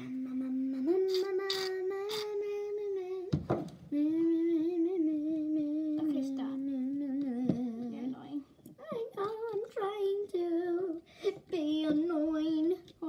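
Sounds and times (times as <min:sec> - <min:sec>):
girl humming: 0:00.0 - 0:03.3, 0:03.9 - 0:09.3.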